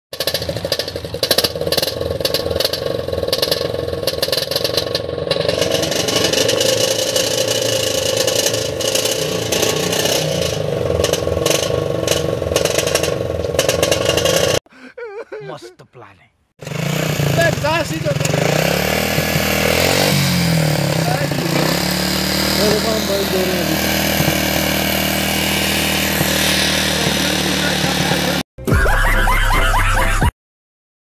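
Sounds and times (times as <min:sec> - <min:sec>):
motorcycle engine revving: 0:00.1 - 0:14.6, 0:16.6 - 0:28.5.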